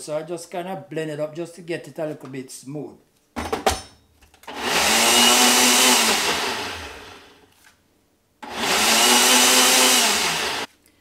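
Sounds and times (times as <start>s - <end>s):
blender motor pulsing: 4.5s - 7.4s, 8.4s - 10.7s.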